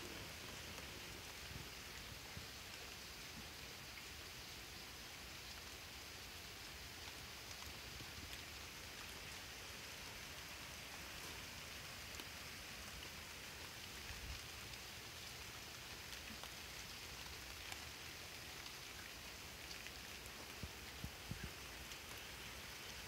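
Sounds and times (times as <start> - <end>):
night ambience hiss: 0.0 - 23.0
small ticks: 17.2 - 23.0.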